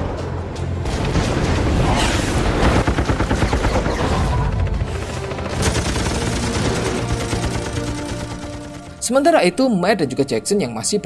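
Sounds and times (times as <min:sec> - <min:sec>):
film soundtrack music: 0:00.0 - 0:11.0
rapid gunfire: 0:02.4 - 0:09.0.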